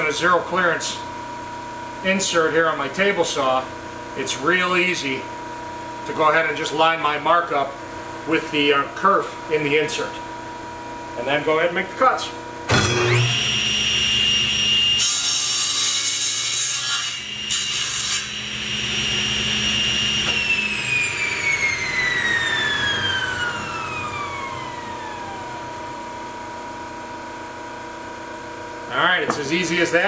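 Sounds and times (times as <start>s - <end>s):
saw blade spinning down: 12.7s - 14.5s, 18.2s - 25.7s
table saw cutting wood: 12.7s - 26.5s.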